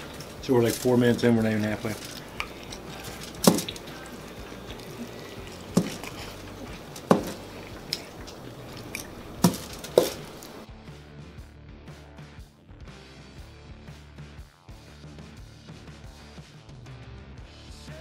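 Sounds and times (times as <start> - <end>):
wet eating smacks and squishes: 0.0 - 10.7.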